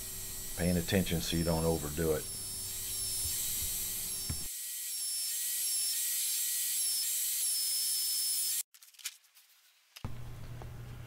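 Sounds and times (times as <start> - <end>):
belt sander hissing: 0.0 - 4.5.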